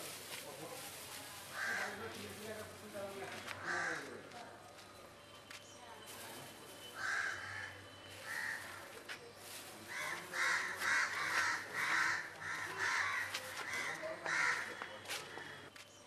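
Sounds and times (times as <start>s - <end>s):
crows cawing: 1.5s - 2.2s, 3.6s - 4.3s, 7.0s - 8.9s, 9.8s - 15.6s.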